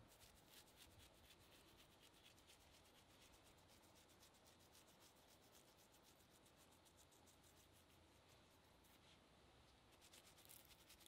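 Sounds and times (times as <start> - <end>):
dried herbs rustling between fingers: 9.9 - 11.0.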